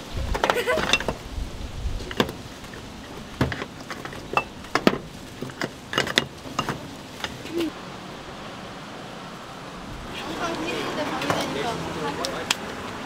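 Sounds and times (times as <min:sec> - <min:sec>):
metal molds clinking: 0:02.0 - 0:07.5.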